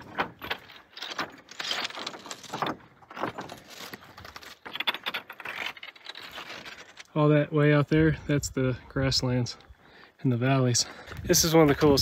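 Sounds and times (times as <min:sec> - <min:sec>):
footsteps on loose rocks: 0:00.0 - 0:07.1, 0:10.8 - 0:12.0.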